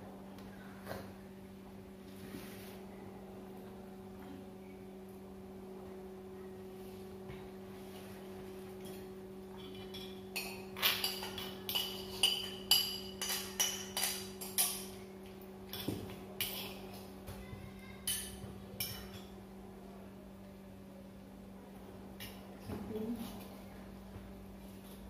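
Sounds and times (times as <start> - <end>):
low steady hum: 0.0 - 25.0
utensils clinking on plates: 8.8 - 17.2, 17.9 - 19.4.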